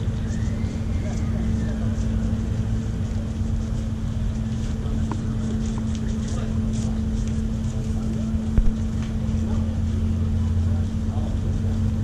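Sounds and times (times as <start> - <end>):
wind rumbling on microphone: 0.0 - 9.7
ferry engines droning: 0.0 - 12.0.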